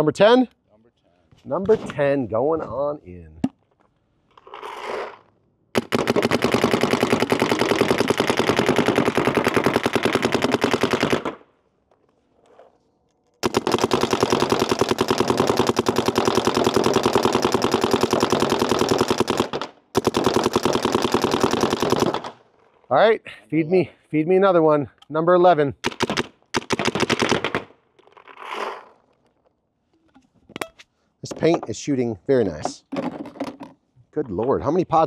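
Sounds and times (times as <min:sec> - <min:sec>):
paintball marker rapid firing: 0:05.8 - 0:11.4, 0:13.4 - 0:22.4, 0:25.8 - 0:27.7.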